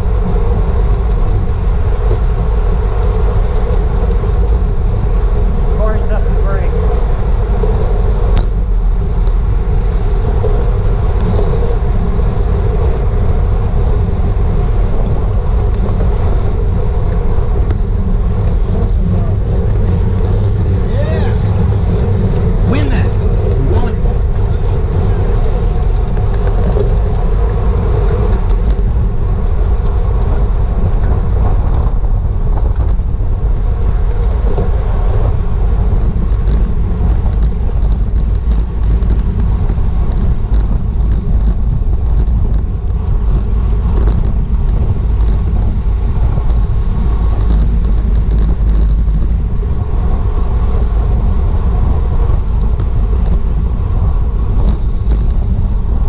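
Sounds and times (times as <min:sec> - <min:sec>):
tyre and road noise: 0:00.0 - 0:56.0
wind rushing over microphone: 0:00.0 - 0:56.0
sharp clicks and rattles: 0:11.2 - 0:34.8, 0:35.7 - 0:49.6, 0:50.6 - 0:56.0.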